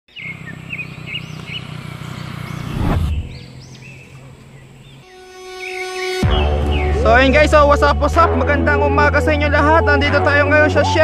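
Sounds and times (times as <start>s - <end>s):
birds chirping: 0.1s - 7.3s
low steady rumble: 0.6s - 4.8s
loud falling whoosh: 2.4s - 3.6s
music with sustained tones: 5.0s - 11.0s.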